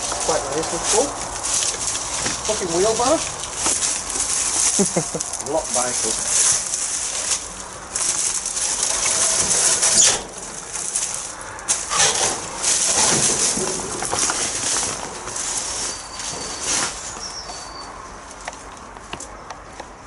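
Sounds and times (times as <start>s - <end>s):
footsteps on dead vegetation: 0.0s - 19.4s
undergrowth rustling: 0.0s - 20.0s.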